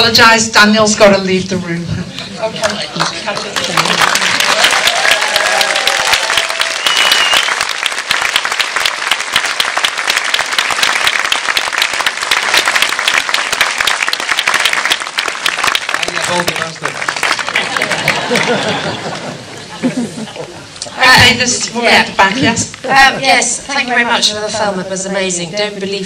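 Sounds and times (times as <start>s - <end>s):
crowd clapping: 2.6s - 19.4s
short high whistle: 6.8s - 7.6s.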